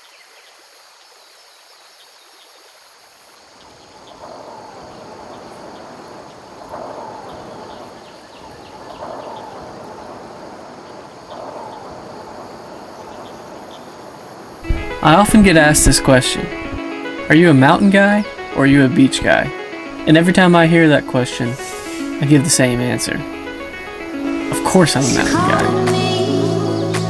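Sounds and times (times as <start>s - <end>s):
faint high chirps: 3.6s - 15.0s
wind rushing: 3.6s - 26.0s.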